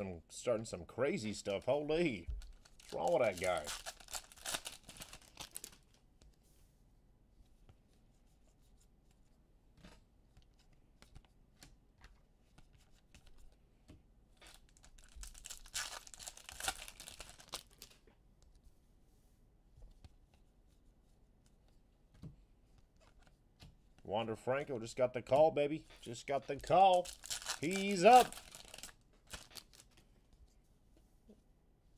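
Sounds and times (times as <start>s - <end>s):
foil wrapper crinkling and tearing: 2.4s - 5.9s, 14.5s - 18.0s, 26.9s - 30.0s.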